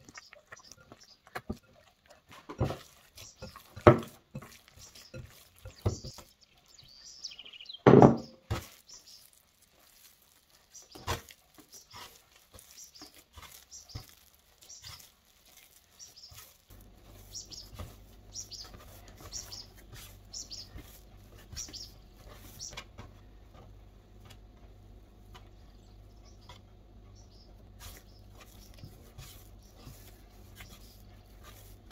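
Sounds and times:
dough slapping and smacking: 2.3 - 6.8, 7.8 - 24.5, 27.7 - 31.9
dough thudding on a board: 2.6 - 6.3, 7.8 - 8.8.

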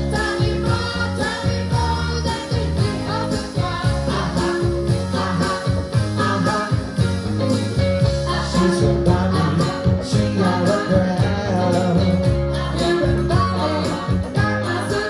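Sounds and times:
bass line: 0.0 - 15.0
guitar: 0.0 - 15.0
man singing: 3.8 - 7.1, 8.3 - 15.0.

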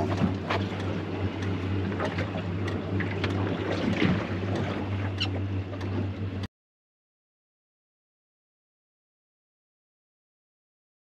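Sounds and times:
steady low hum: 0.0 - 6.5
water lapping at boat hull: 0.0 - 6.5
wind: 0.0 - 6.5.

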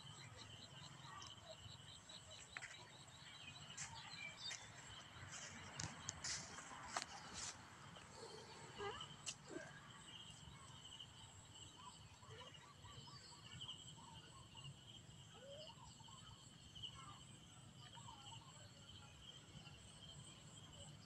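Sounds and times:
faint chirps: 0.0 - 21.0.

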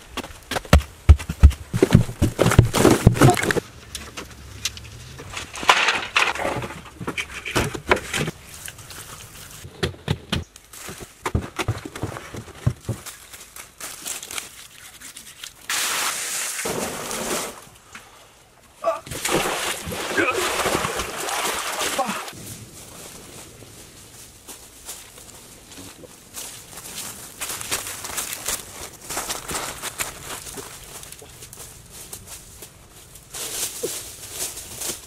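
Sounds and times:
loose dirt scraping and crumbling: 0.0 - 18.2, 19.1 - 35.0
hand tools chopping hard earth: 0.5 - 3.6.

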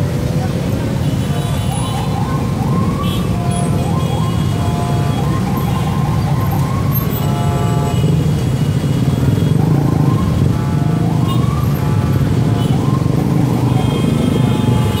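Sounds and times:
motorcycle and car engines: 0.0 - 15.0
siren rising in pitch: 1.7 - 7.5
vehicle horn honking: 3.4 - 5.3, 7.1 - 8.2, 13.8 - 15.0.

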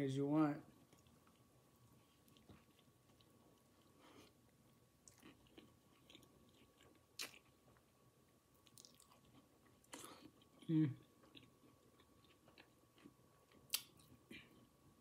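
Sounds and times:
chewing with wet mouth clicks: 0.8 - 7.9, 8.6 - 14.2.

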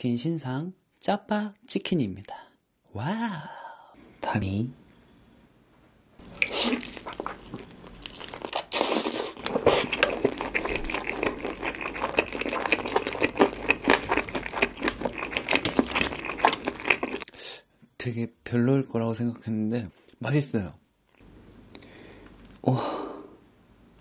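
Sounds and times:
crunchy chewing: 6.2 - 17.3.

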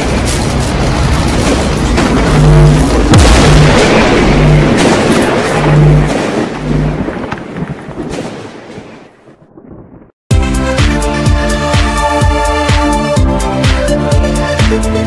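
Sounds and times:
deep boom and rumble: 0.0 - 10.2
low hum pulses: 1.0 - 7.1.

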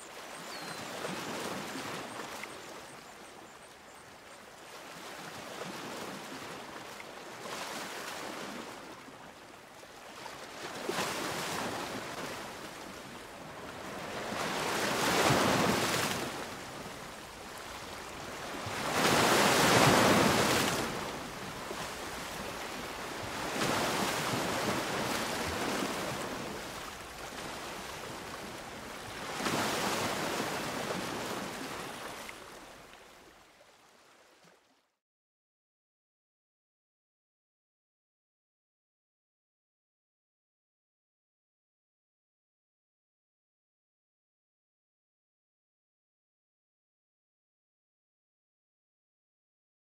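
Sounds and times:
ocean waves washing in: 10.4 - 32.9.

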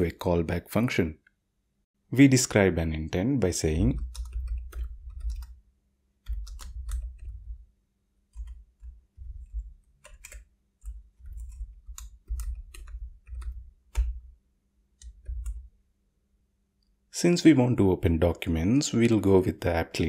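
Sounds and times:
computer keyboard typing: 3.7 - 5.6, 6.2 - 7.6, 8.3 - 14.3, 15.0 - 15.7.

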